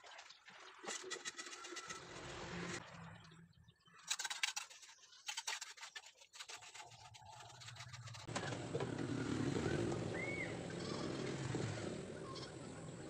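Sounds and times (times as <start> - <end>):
trowel clicks and scrapes: 4.0 - 8.3
wet mortar scraping: 4.0 - 8.3
low engine hum: 8.3 - 13.0.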